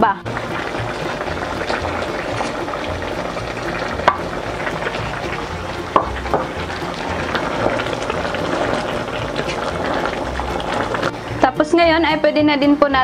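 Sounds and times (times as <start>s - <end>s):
stew bubbling: 0.3s - 11.4s
spatula scraping and knocking pan: 0.9s - 10.6s.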